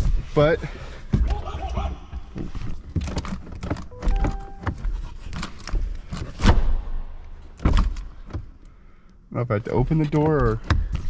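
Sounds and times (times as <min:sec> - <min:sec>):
electronic tone: 0:03.9 - 0:04.8.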